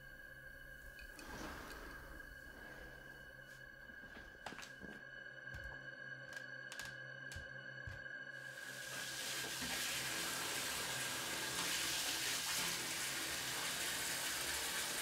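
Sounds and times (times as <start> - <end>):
tap water pouring into bathtub: 8.6 - 15.0.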